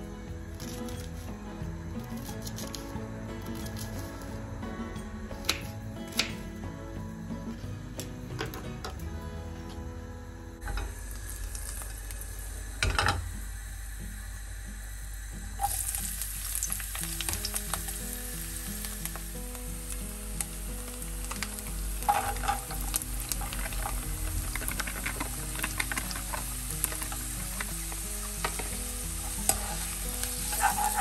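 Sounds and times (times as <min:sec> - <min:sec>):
onion sizzling in hot oil: 0:00.0 - 0:06.6, 0:10.6 - 0:31.0
wooden spatula stirring: 0:21.4 - 0:31.0.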